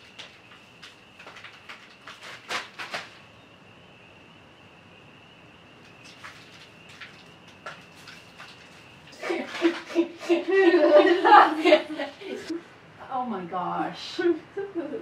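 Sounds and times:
wet plaster bandage rustling: 0:00.0 - 0:03.2
insects trilling: 0:00.0 - 0:15.0.

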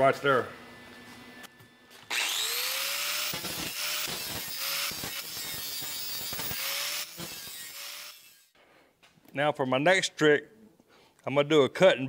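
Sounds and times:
angle grinder cutting steel: 0:02.1 - 0:08.6.

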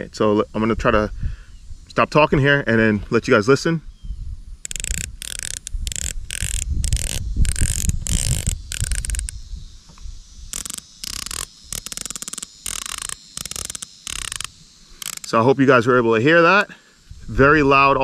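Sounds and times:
scope turret clicks: 0:04.6 - 0:09.4, 0:10.5 - 0:15.4.

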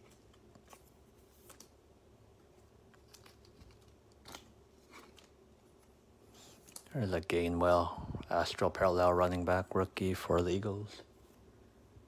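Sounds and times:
trading cards clicking and crinkling: 0:00.0 - 0:06.9
low room hum: 0:00.0 - 0:12.0.

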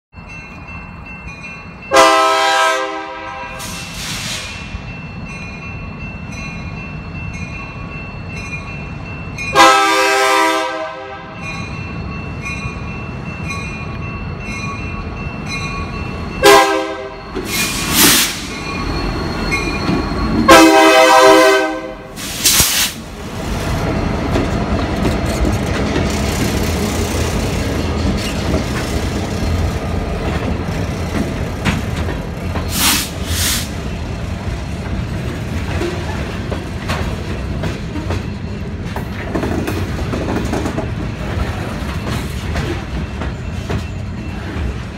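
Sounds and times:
crossing bell dinging: 0:00.1 - 0:03.8, 0:04.6 - 0:17.6, 0:18.4 - 0:22.1, 0:33.8 - 0:39.3, 0:40.8 - 0:44.9
locomotive air horn blasts: 0:01.9 - 0:04.4, 0:09.5 - 0:11.4, 0:16.4 - 0:17.2, 0:20.5 - 0:22.3
train wheels clattering over rails: 0:22.2 - 0:44.9.

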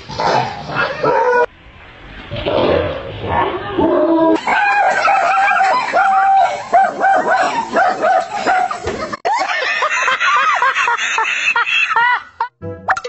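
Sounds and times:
dog barking high-pitched: 0:04.4 - 0:08.8.

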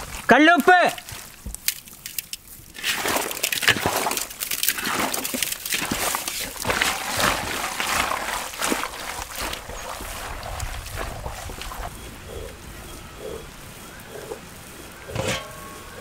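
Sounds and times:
wet squelching of meat: 0:01.0 - 0:12.4.

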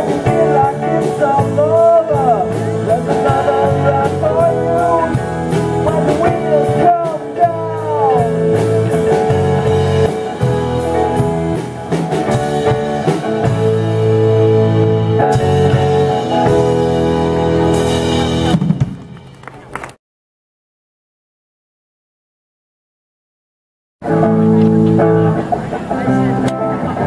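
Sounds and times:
electric bass: 0:00.0 - 0:19.3, 0:24.0 - 0:27.0
electric guitar: 0:00.0 - 0:19.3, 0:24.0 - 0:27.0
drum kit: 0:00.0 - 0:19.5
keyboard: 0:00.0 - 0:19.7.

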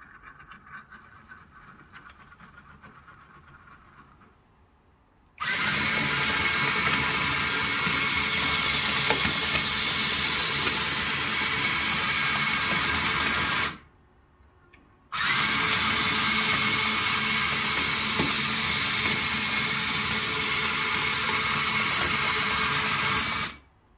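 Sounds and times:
electric motors and tracks running: 0:05.4 - 0:13.8, 0:15.1 - 0:23.6.

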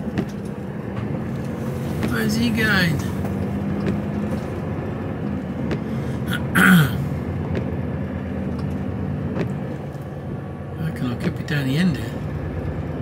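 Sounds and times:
lorry engine humming: 0:00.0 - 0:13.0
person grunting: 0:06.3 - 0:07.1.

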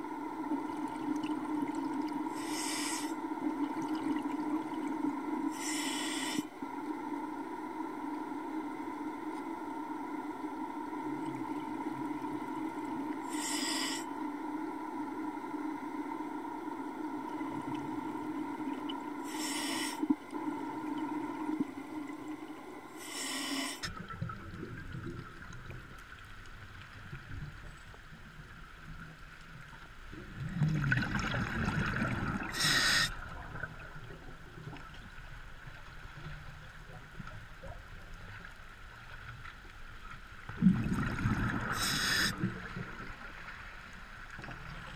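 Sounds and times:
steady hum: 0:00.0 - 0:24.0, 0:32.2 - 0:35.8
muffled rushing water: 0:00.0 - 0:44.9
short hisses: 0:02.4 - 0:03.1, 0:05.6 - 0:06.5, 0:13.3 - 0:14.1, 0:19.3 - 0:20.0, 0:23.0 - 0:23.9, 0:32.6 - 0:33.1, 0:41.8 - 0:42.4
bubbling rumble: 0:30.2 - 0:32.6, 0:40.5 - 0:43.2.

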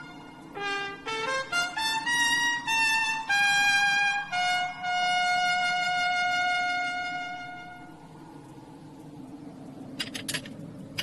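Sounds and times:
trumpet holding long note: 0:00.0 - 0:08.0
low hum: 0:00.0 - 0:11.0.

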